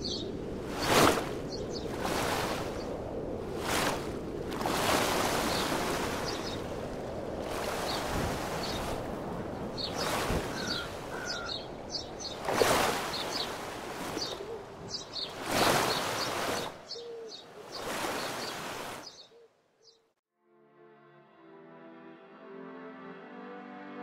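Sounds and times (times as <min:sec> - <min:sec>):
waves washing in: 0:00.0 - 0:19.2
faint bird chirps: 0:09.8 - 0:12.4, 0:13.1 - 0:20.1.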